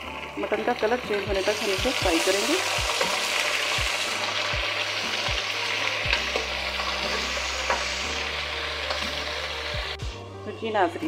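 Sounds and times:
meat sizzling in hot fat: 0.0 - 10.2
steel ladle scraping a pot: 6.1 - 9.0.

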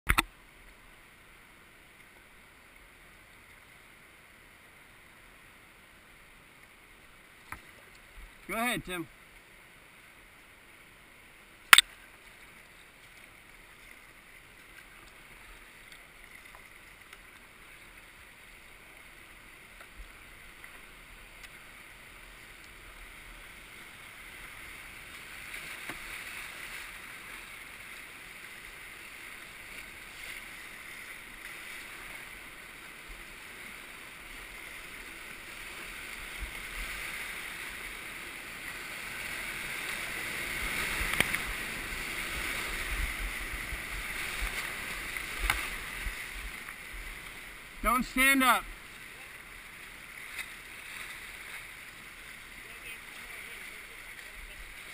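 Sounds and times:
river water rushing: 0.1 - 54.9.

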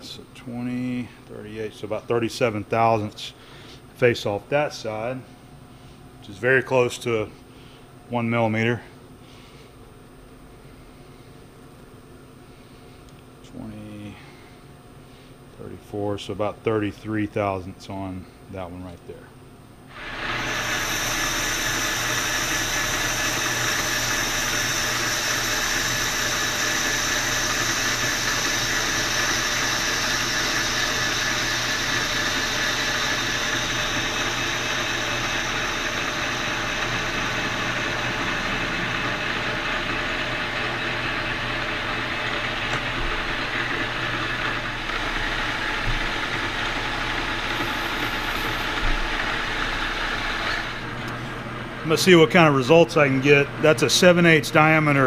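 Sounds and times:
metal lathe cutting with whine: 19.9 - 55.0.

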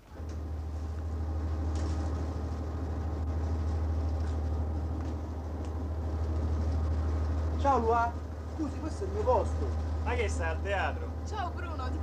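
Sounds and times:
train rumble inside carriage: 0.0 - 12.0.

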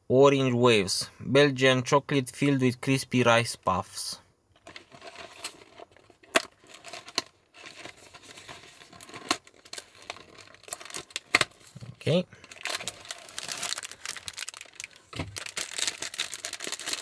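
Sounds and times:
cardboard box crackling and snapping: 8.7 - 11.7, 12.5 - 17.0.

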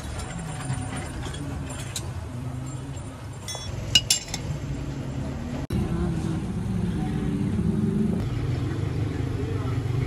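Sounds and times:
steel pieces clinking on anvil: 3.4 - 4.5.

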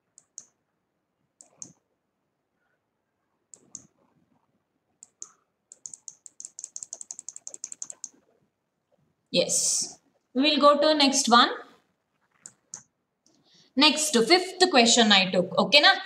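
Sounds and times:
computer mouse clicks: 0.0 - 0.6, 1.4 - 1.8, 3.5 - 4.1, 5.0 - 8.2, 12.3 - 13.4
keyboard typing: 0.1 - 0.6, 1.4 - 1.8, 3.5 - 4.0, 5.0 - 8.2, 12.3 - 12.9.

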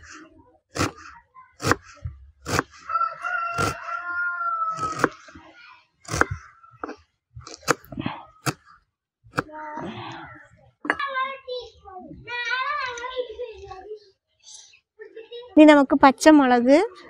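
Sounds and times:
knife chopping on wooden board: 0.8 - 1.0, 1.6 - 1.8, 2.4 - 2.8, 3.5 - 3.8, 4.8 - 5.2, 6.1 - 6.4
rooster crowing: 2.8 - 5.1.

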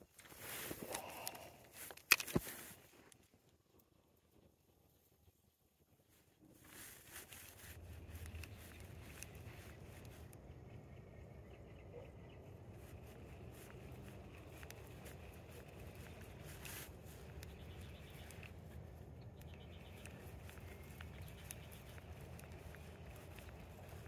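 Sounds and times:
light clicks: 7.7 - 10.4, 12.9 - 24.0.

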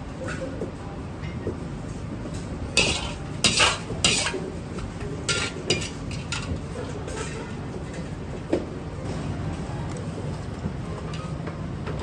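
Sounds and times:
low background hum: 0.0 - 12.0
utensils scraping a plate: 2.8 - 4.4, 5.3 - 7.6.

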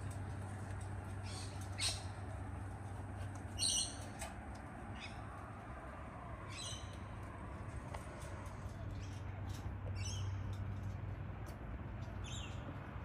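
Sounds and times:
cockatoos squawking: 1.2 - 2.2.

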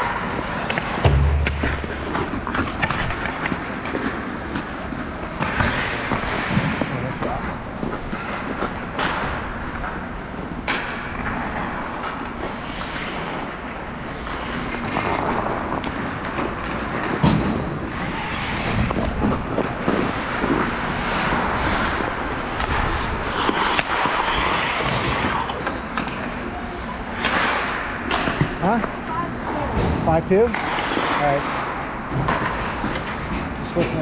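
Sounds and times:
sticks and puck clacking: 0.0 - 29.6, 30.3 - 34.0
skates scraping ice: 0.0 - 34.0.

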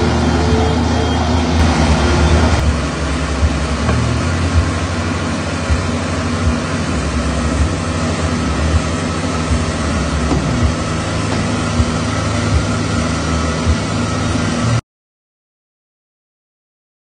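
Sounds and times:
tracked vehicle engine running: 0.0 - 14.8
short clunks: 10.3 - 11.6.

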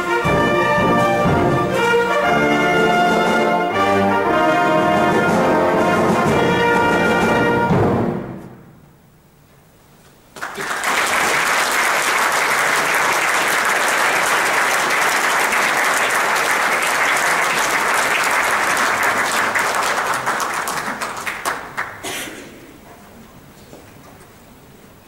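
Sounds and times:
audience applauding: 10.4 - 22.1.

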